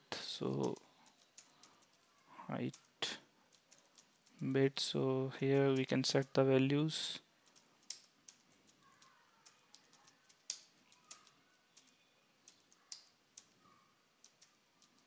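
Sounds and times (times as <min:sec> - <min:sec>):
computer keyboard typing: 0:00.4 - 0:04.5, 0:07.4 - 0:13.6, 0:14.2 - 0:15.0.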